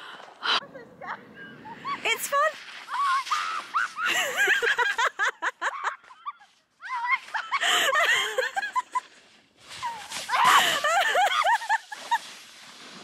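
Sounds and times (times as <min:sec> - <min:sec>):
people laughing hard: 0:03.8 - 0:06.3, 0:06.9 - 0:09.0, 0:10.4 - 0:12.2.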